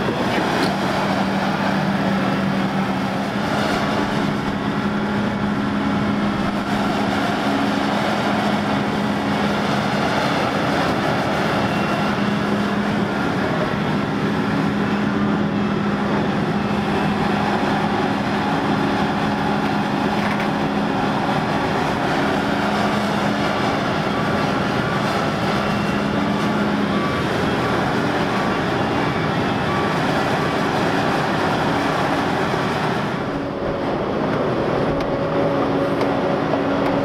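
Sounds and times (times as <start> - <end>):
excavator diesel engine under load: 0.0 - 37.0.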